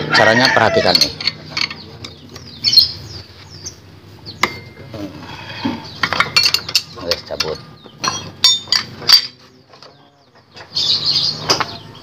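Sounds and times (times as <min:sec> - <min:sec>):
wrench clinking on metal: 0:00.7 - 0:02.2, 0:06.0 - 0:09.4
bird chirping: 0:01.4 - 0:08.7, 0:09.3 - 0:12.0.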